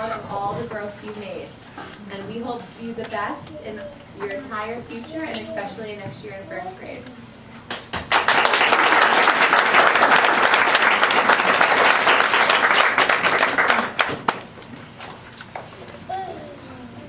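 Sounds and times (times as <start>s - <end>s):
audience applauding: 8.0s - 14.6s.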